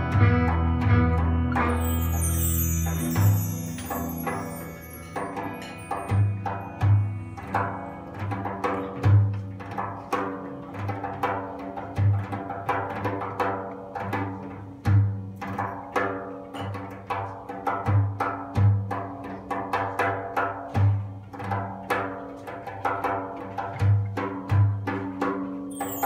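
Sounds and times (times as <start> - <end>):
held instrument tones: 0.0 - 9.3, 25.7 - 26.0.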